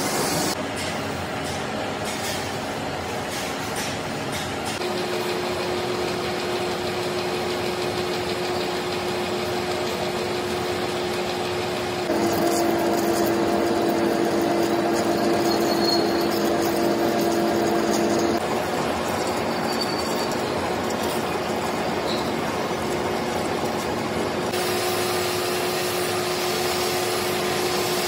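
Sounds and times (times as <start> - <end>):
lathe machine drone: 4.9 - 28.0
higher machine tone: 12.1 - 18.4.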